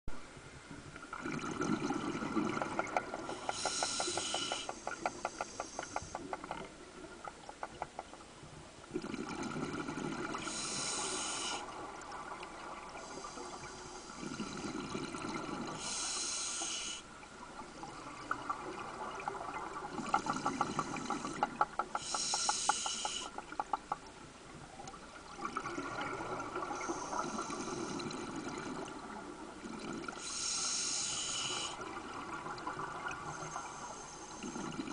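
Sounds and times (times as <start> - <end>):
exhaled bubbles underwater: 1.0 - 5.2, 8.9 - 16.0, 17.4 - 21.8, 24.7 - 30.3, 31.6 - 33.8, 34.4 - 34.9
regulator hiss: 3.3 - 6.3, 10.4 - 11.7, 15.8 - 17.1, 20.4 - 23.4, 30.2 - 31.8.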